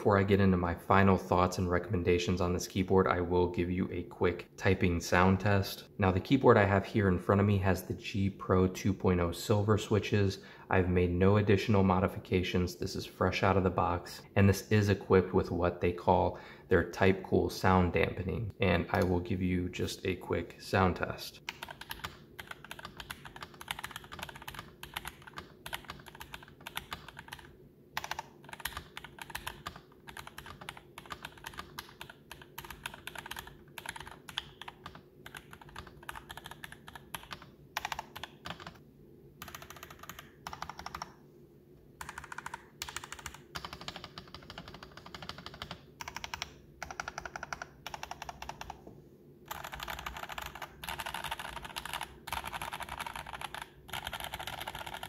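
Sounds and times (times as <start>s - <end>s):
mechanical keyboard typing: 21.5s - 38.8s, 39.4s - 41.2s, 42.0s - 48.8s, 49.5s - 55.0s.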